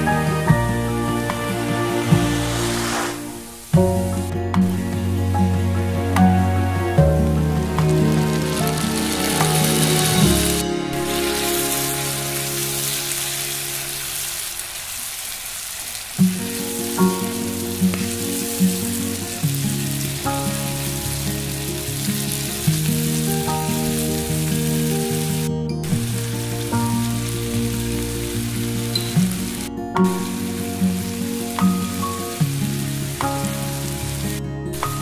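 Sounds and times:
onions sizzling in oil: 0.0s - 6.2s, 6.8s - 35.0s
background music with beat: 3.2s - 12.8s, 24.5s - 35.0s.

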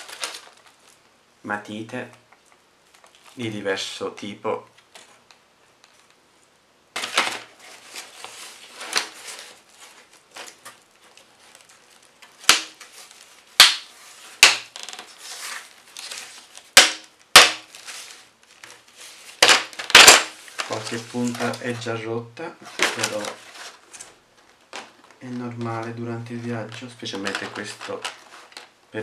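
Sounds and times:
plastic scraping on cardboard: 7.0s - 16.8s, 22.6s - 24.2s
sharp plastic snaps: 13.6s - 14.8s, 19.4s - 20.7s.

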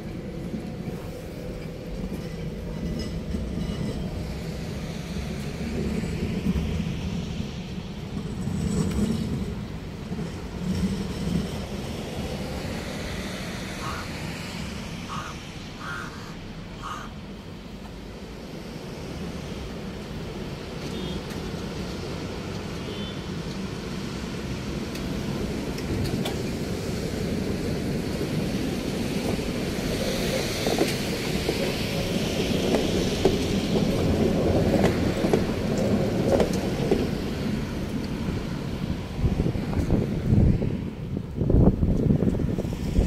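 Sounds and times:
wheels clicking over rails: 0.0s - 13.8s, 23.4s - 43.0s
trams rolling past: 0.0s - 43.0s.

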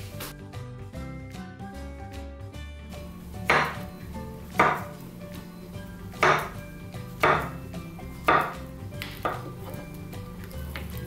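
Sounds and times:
knife chopping on cutting board: 3.4s - 3.9s, 4.5s - 5.0s, 6.2s - 9.8s.

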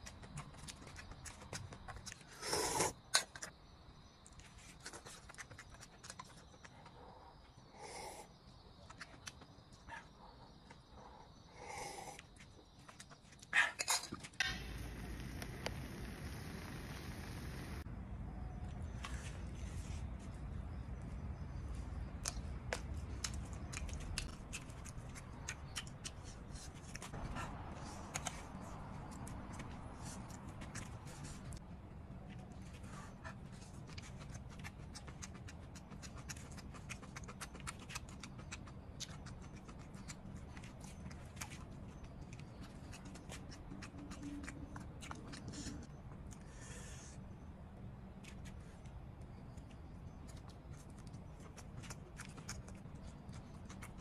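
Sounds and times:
low background rumble: 14.4s - 25.0s
chewing clicks: 22.2s - 27.1s, 33.8s - 45.6s, 49.6s - 54.0s.

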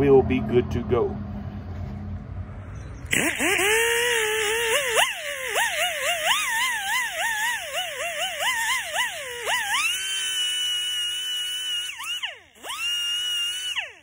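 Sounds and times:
low steady hum: 0.0s - 6.8s
die grinder whining: 3.0s - 14.0s.

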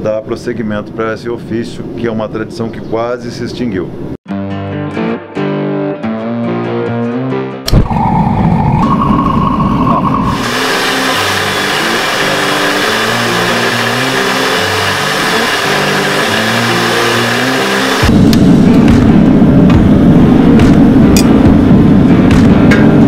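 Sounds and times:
forge burner rumbling: 7.8s - 14.2s
belt grinder grinding: 10.3s - 18.1s
background music with steady beat: 17.8s - 23.0s.

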